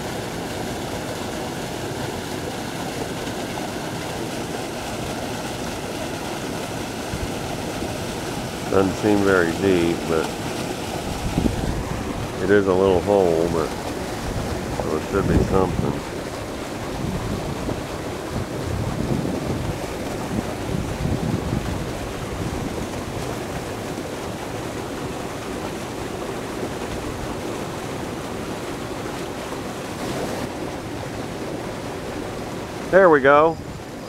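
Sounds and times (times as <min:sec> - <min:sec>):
water rushing from spillway: 0:00.0 - 0:34.0
wind buffeting microphone: 0:04.9 - 0:25.6.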